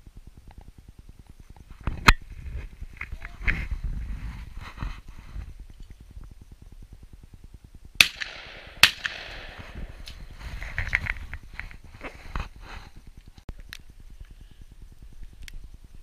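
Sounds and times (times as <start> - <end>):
shotgun shots with echo: 8.0 - 10.1.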